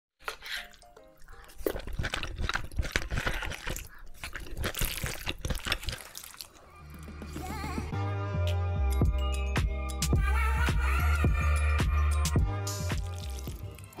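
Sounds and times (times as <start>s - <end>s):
chewing and slurping noodles: 0.2s - 7.0s.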